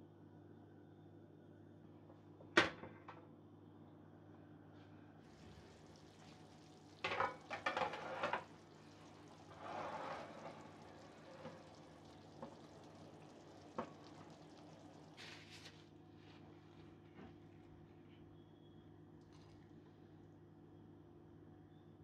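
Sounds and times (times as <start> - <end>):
utensil scraping in a dish: 9.3 - 11.7.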